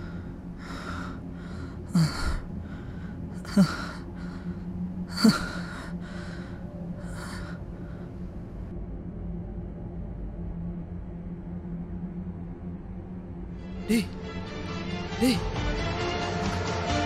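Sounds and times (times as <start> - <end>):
person gasping: 0.0 - 8.1, 13.9 - 14.2, 15.2 - 15.5
person breathing hard: 0.0 - 8.7, 13.9 - 14.2, 15.2 - 15.4
steady low hum: 0.0 - 15.4.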